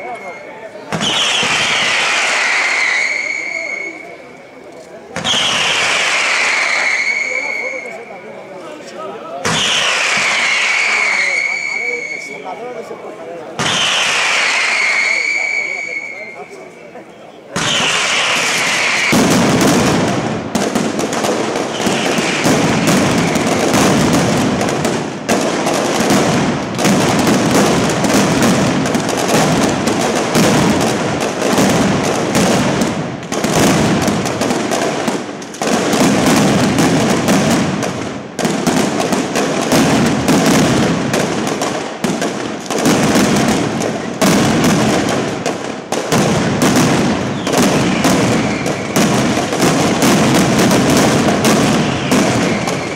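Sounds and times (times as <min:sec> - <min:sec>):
firecrackers rattling rapid bangs: 0:00.9 - 0:04.0, 0:05.1 - 0:08.1, 0:09.4 - 0:12.0, 0:13.6 - 0:15.9, 0:17.5 - 0:52.9.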